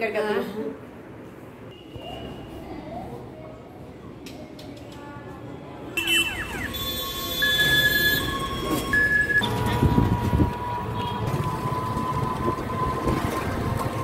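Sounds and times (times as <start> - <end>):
two-tone electronic beeping: 6.0 - 13.2
rickshaw rumbling and rattling: 6.4 - 14.0.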